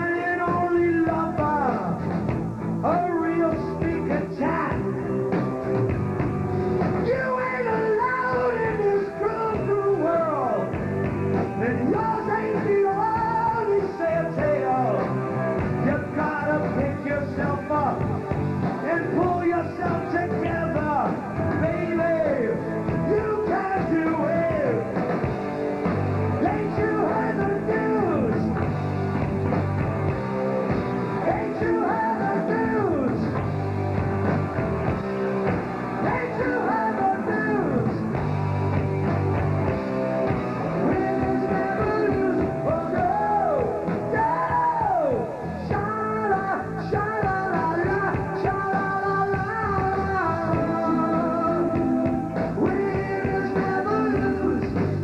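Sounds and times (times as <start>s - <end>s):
man singing: 0.0s - 2.0s, 2.8s - 5.0s, 7.0s - 10.8s, 11.5s - 25.0s, 26.4s - 28.6s, 31.2s - 33.4s, 36.0s - 38.2s, 40.7s - 55.0s
live rock band playing: 0.0s - 55.0s.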